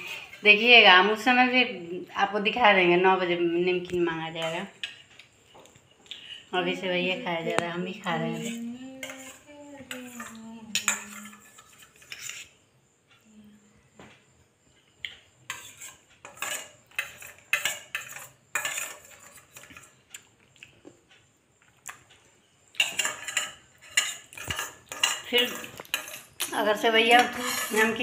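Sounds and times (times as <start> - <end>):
spoons clinking on steel bowls: 7.1 - 12.5, 15.5 - 19.9, 22.8 - 28.0.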